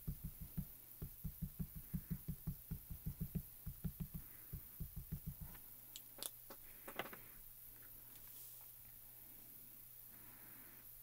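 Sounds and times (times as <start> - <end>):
rapid soft tapping: 0.0 - 5.6.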